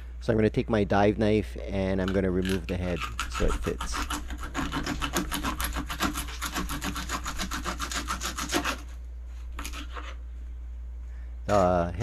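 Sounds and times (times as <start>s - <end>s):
knife sawing through fish: 2.4s - 10.2s.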